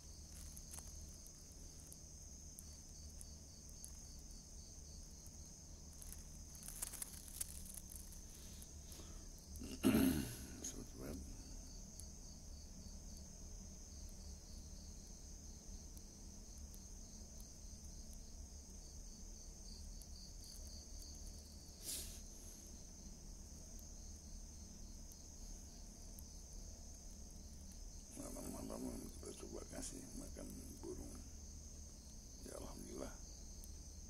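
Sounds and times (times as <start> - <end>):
crickets trilling: 0.0 - 34.0.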